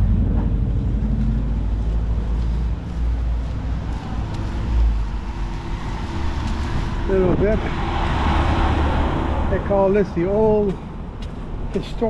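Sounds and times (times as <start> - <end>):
wind buffeting microphone: 0.0 - 11.8
traffic rumble: 0.0 - 12.0.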